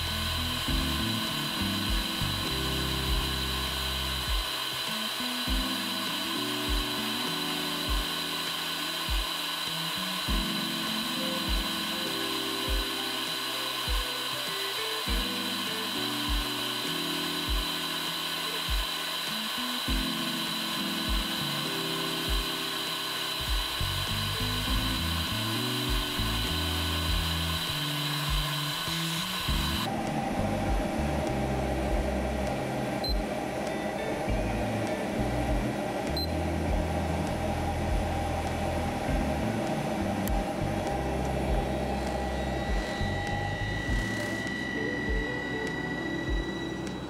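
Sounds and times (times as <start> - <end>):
low hum: 0.0 - 14.2, 14.8 - 47.0
background music with slow beat: 0.0 - 47.0
machine whine and hiss: 0.0 - 47.0.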